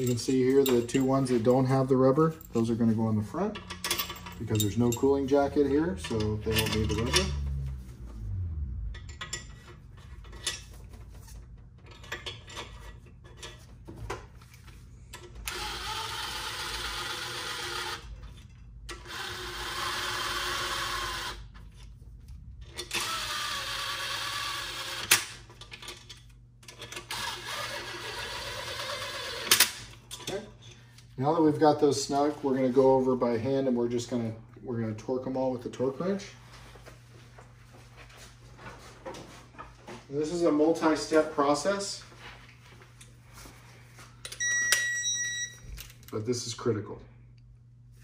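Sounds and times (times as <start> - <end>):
bolts and washers clicking: 3.5 - 5.4
cordless power ratchet running: 15.4 - 18.1, 19.0 - 21.4, 22.9 - 25.1.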